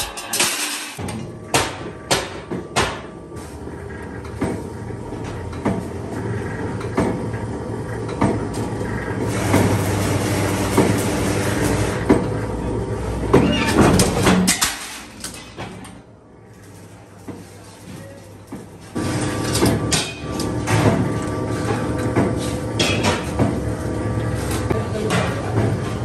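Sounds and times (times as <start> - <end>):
shear motor hum: 3.5 - 12.9.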